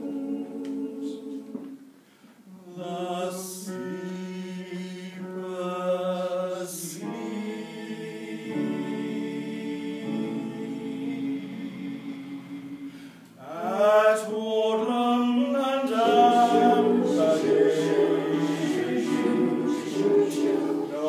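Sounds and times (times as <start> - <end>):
choir singing held chords: 0.0 - 1.9, 2.5 - 21.0
sibilant s sounds: 15.3 - 21.0.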